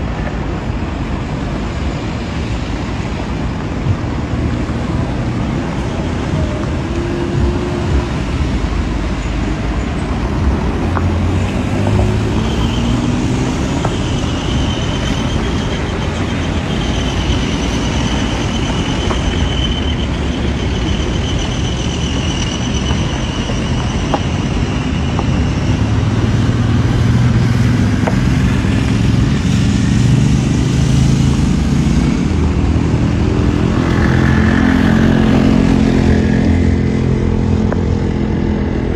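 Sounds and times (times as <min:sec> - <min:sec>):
engine drone: 0:00.0 - 0:38.9
rumble of car engines and tyres: 0:00.0 - 0:38.9.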